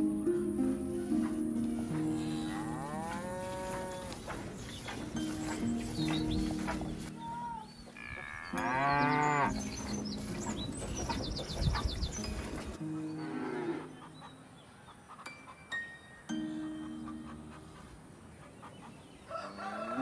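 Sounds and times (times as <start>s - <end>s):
cow mooing: 1.9s - 4.4s, 7.2s - 9.5s.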